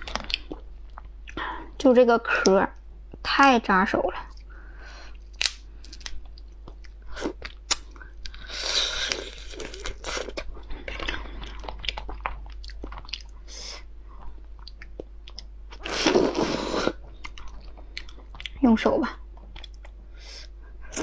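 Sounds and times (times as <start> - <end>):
crunching and chewing: 0.0 - 1.4, 5.1 - 13.4, 14.2 - 18.6, 19.3 - 20.0
shells cracking and snapping: 5.2 - 8.3.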